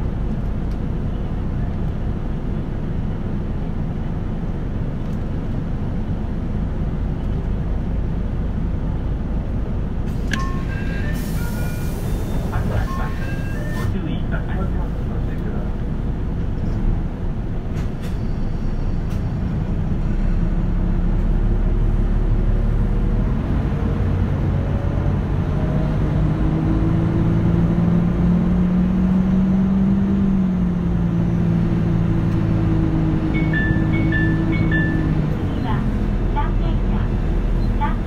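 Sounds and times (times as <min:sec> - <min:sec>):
bus diesel engine pulling away: 0:00.0 - 0:38.0
electronic chime high notes: 0:33.4 - 0:35.1.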